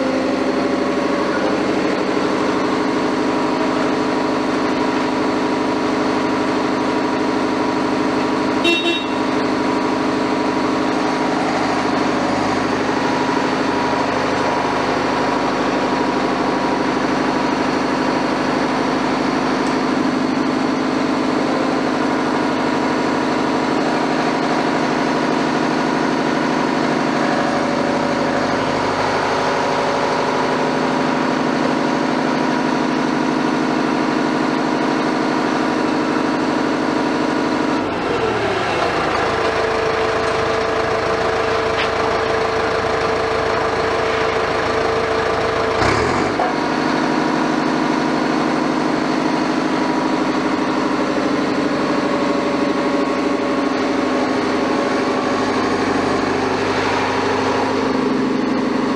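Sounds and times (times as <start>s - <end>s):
diesel engine idling: 0.0s - 58.9s
short horn toot: 8.6s - 9.3s.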